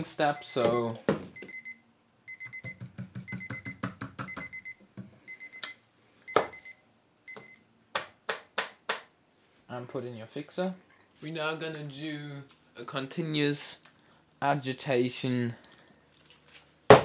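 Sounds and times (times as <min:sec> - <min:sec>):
timer alarm beeping: 0:00.4 - 0:07.6.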